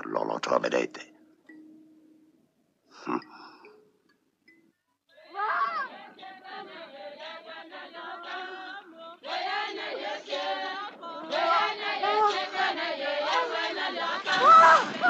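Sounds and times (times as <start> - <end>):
many voices chanting: 5.1 - 15.0.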